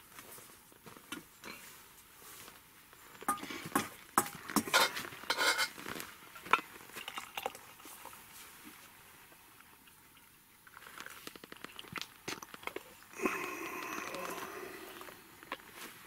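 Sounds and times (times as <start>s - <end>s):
dishes clinking and clattering: 3.3s - 5.8s.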